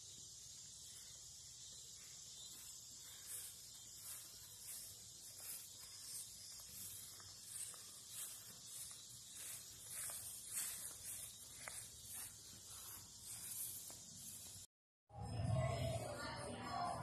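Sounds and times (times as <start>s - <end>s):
steady high hiss: 0.0s - 14.7s
footsteps swishing through grass: 1.8s - 14.7s.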